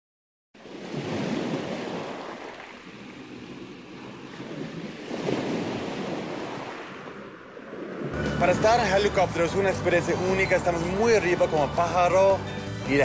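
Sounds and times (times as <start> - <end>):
ocean waves breaking: 0.6 - 13.0.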